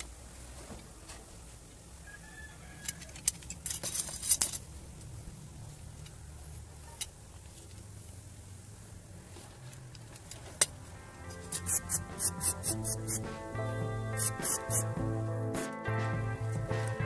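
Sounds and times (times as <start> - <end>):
steel clamp parts clinking: 3.0 - 4.6
faint background music: 10.6 - 17.0.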